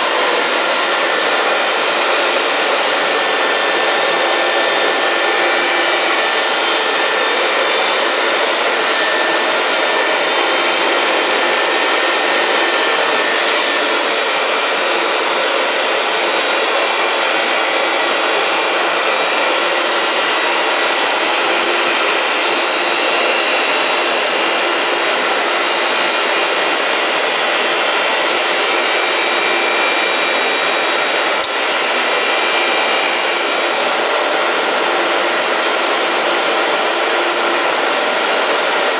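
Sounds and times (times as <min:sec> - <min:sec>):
glass edging machine whirring: 0:00.0 - 0:38.9
sharp click: 0:31.4 - 0:31.6.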